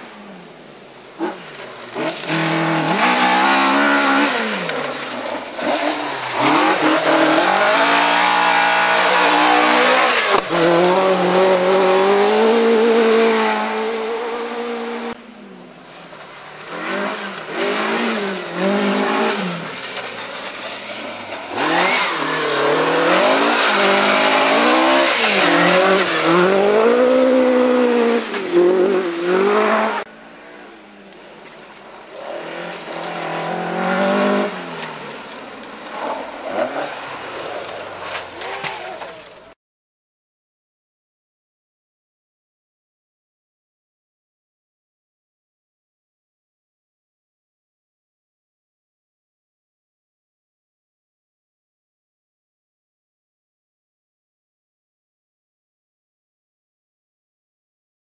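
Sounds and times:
rally car engines at full throttle: 0.0 - 39.6.

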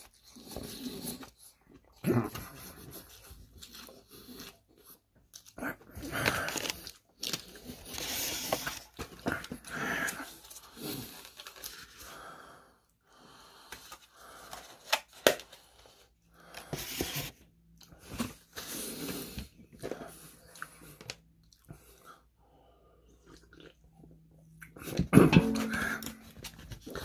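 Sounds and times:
person chewing: 23.1 - 25.0.

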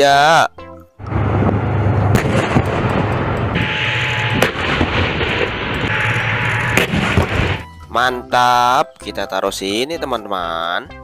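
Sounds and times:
heavy tank engine rumble: 1.0 - 7.7
sharp shot-like bangs: 2.0 - 7.7.

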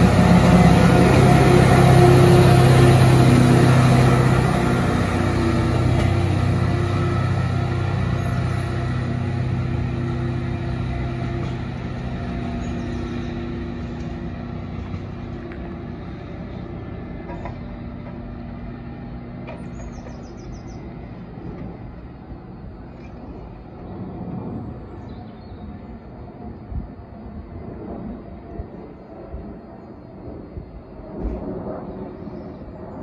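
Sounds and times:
diesel engine running: 0.0 - 23.9
low rumble: 0.0 - 33.0.

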